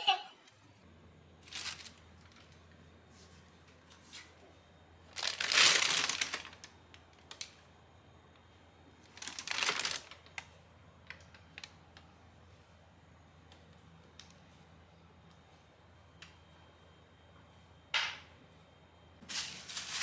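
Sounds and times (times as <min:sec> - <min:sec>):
plastic bag rustling: 0:01.4 - 0:02.6, 0:05.1 - 0:06.7, 0:09.0 - 0:10.4, 0:19.2 - 0:20.0.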